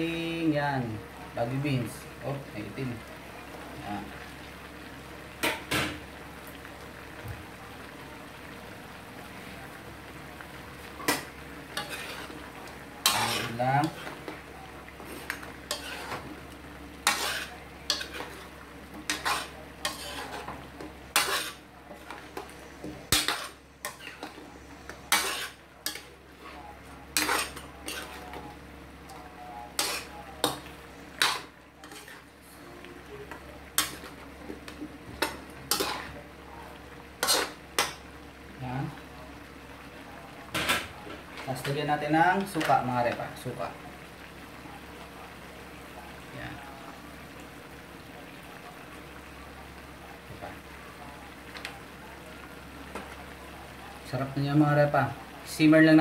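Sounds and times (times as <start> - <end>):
metal spatula scraping wok: 11.0 - 12.4, 13.0 - 14.3, 15.0 - 16.4, 17.0 - 21.6, 23.1 - 24.4, 25.0 - 26.1, 27.1 - 28.4, 29.7 - 32.3, 35.2 - 36.2, 37.2 - 37.9.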